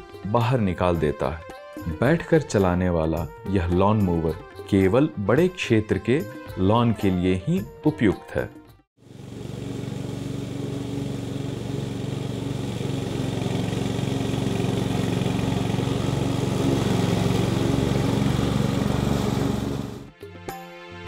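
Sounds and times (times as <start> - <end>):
ride-on mower engine running: 9.0 - 20.1.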